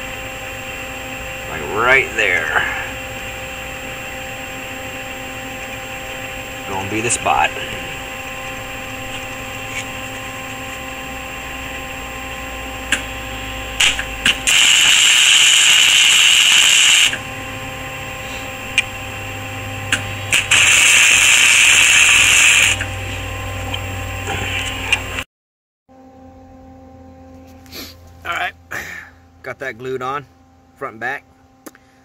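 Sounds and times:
arc welder crackling: 0:00.0 - 0:25.2.

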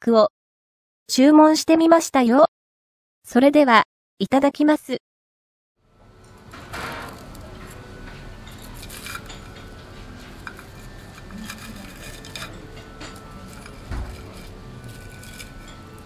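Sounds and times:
diner room noise: 0:05.8 - 0:16.0
chopsticks and dishes clinking: 0:06.2 - 0:16.0.

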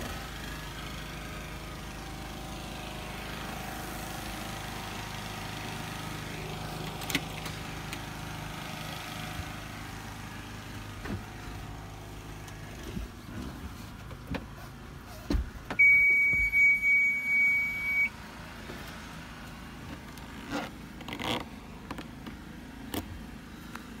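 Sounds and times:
low engine idle hum: 0:00.0 - 0:24.0
high electronic beep: 0:15.8 - 0:18.1.

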